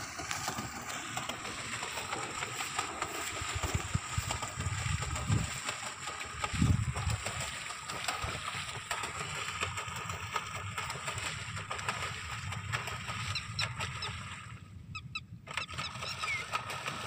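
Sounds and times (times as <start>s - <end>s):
paddle wheel churning water: 0.0s - 17.0s
wind rumble on microphone: 3.2s - 8.7s.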